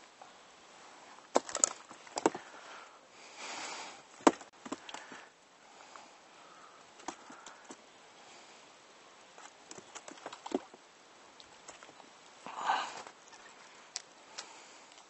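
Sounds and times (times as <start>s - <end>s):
fishing gear knocks and clicks: 1.4s - 2.4s.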